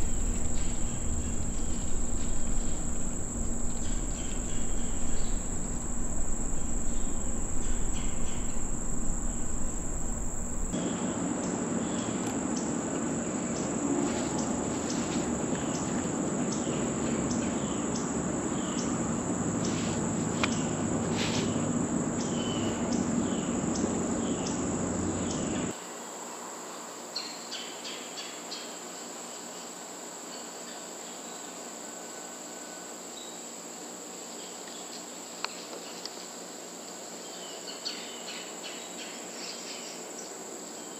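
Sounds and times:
short insect clicks and chirps: 0.0 - 10.8
crickets and insects chorus: 0.0 - 11.0, 11.8 - 40.9.

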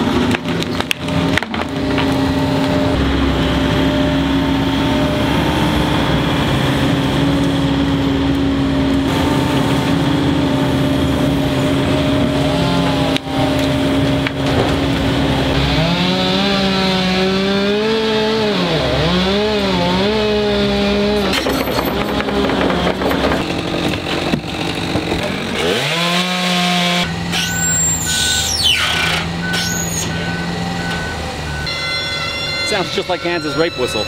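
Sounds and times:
chainsaw revving: 15.5 - 27.1
high beeping: 27.4 - 34.0.

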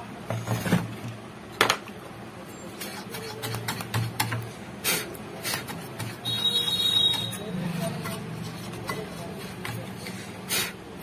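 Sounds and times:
light scraping of metal parts: 7.2 - 10.3.

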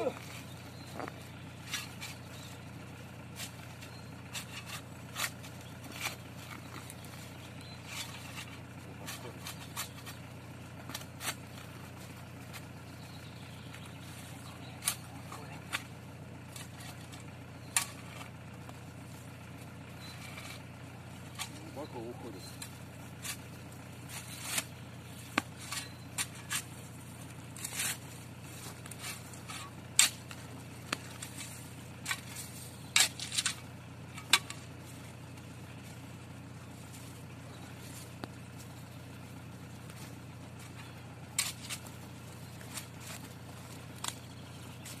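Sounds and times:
spade digging into soil: 3.2 - 13.4, 14.6 - 18.8, 20.0 - 36.0, 39.8 - 45.0.

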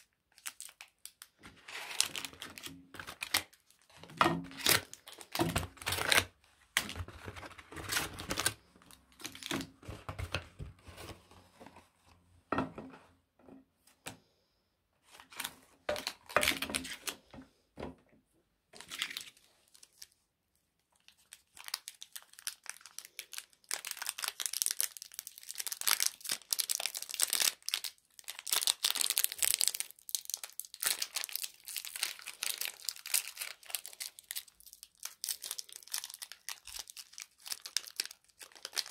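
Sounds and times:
foil wrappers crinkling: 0.0 - 10.0, 21.0 - 38.9.

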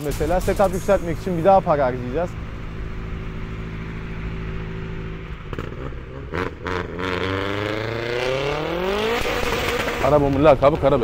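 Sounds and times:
car engine and exhaust revving: 0.0 - 11.0.

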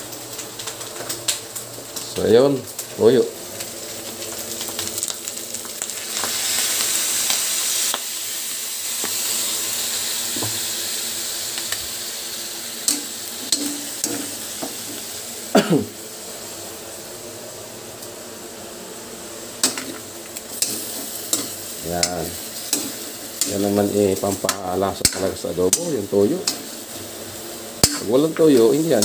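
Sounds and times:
meat sizzling in a wok: 0.0 - 29.0
ladle scraping wok: 12.9 - 15.0, 19.6 - 25.8.

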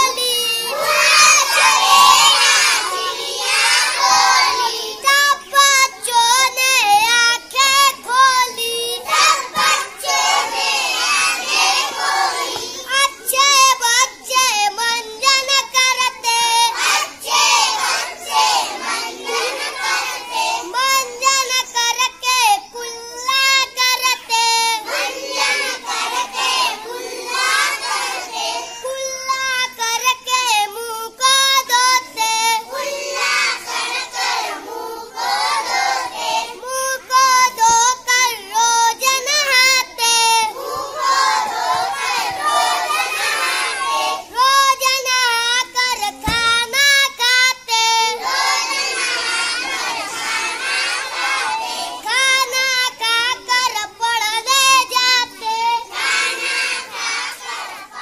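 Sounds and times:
boy singing: 0.0 - 58.0.

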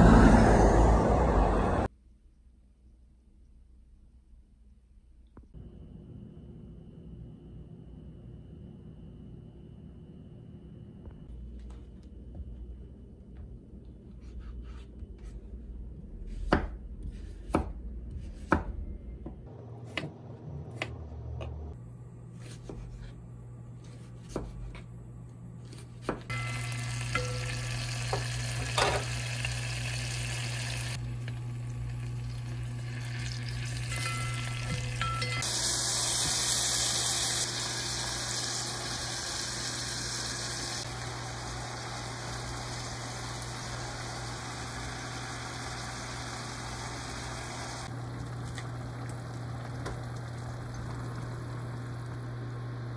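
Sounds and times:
oil sizzling in a pot: 26.3 - 51.8.

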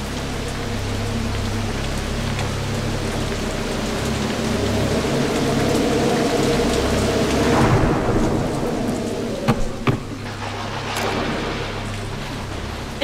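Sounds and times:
heavy rain: 0.0 - 13.0
rolling thunder: 6.9 - 13.0.

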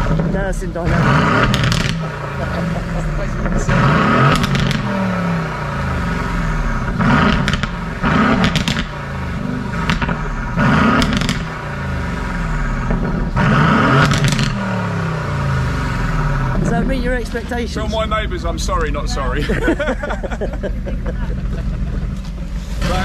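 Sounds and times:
exhaust pops and cracks: 0.0 - 14.9, 20.1 - 23.0
car engine revving: 0.0 - 23.0.

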